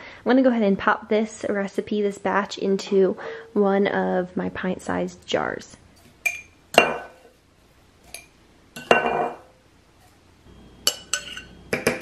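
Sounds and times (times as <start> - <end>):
spoon and glass jar clinking: 6.2 - 7.3, 8.1 - 9.4, 10.8 - 12.0.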